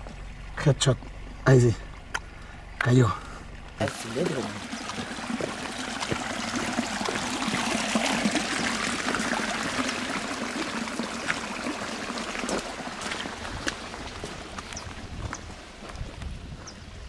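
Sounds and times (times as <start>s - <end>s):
stream running over stones: 0.0s - 17.0s
footsteps splashing through water: 3.8s - 16.8s.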